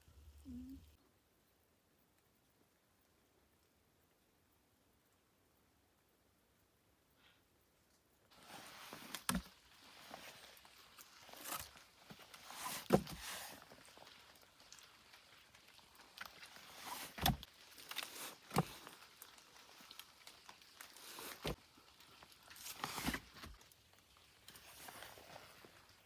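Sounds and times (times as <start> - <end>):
dry twigs and leaves rustling: 7.8 - 26.0.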